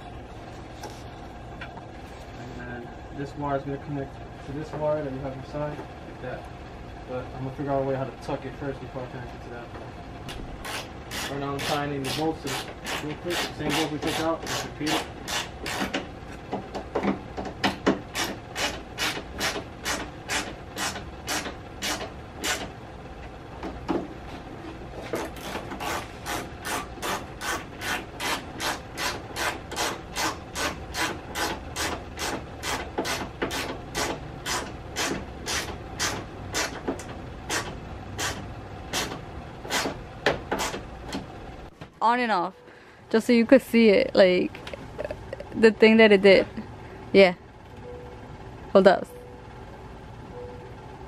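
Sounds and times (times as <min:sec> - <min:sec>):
ratchet wrench clicking: 0:10.6 - 0:16.0.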